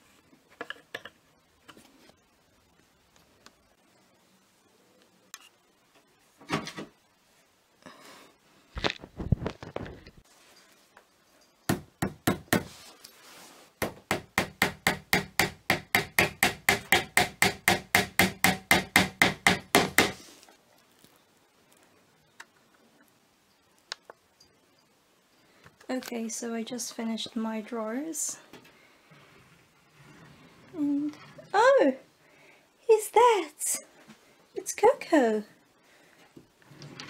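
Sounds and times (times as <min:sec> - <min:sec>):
hammer tapping nails: 0:13.8 - 0:20.2.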